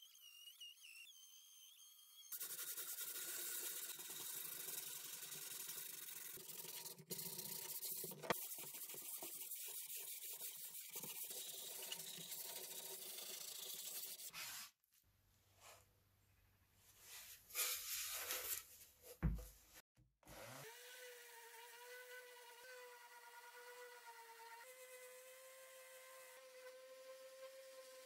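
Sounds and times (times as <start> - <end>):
small electric power tool running: 0.0 - 8.4.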